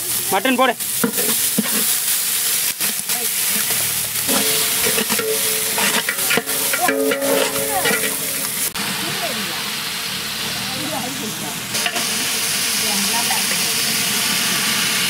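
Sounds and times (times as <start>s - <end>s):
meat sizzling in hot oil: 0.0s - 15.0s
metal ladle knocking against pot: 4.3s - 8.8s.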